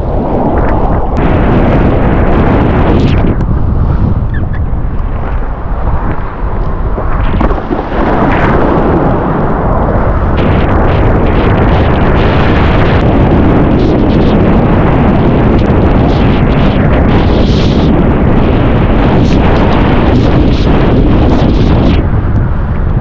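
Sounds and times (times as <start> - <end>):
wind buffeting microphone: 0.0 - 23.0
board splashing through choppy water: 5.1 - 22.1.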